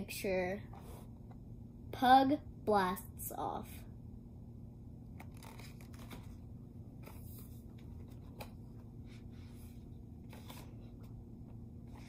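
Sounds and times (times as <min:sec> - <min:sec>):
low room hum: 0:00.0 - 0:12.0
book rustling and tapping: 0:07.0 - 0:09.6, 0:10.2 - 0:12.0.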